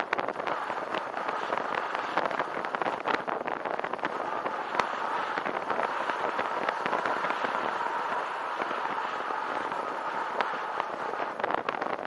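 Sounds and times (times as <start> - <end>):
bicycle tyres crackling on gravel: 0.0 - 12.0.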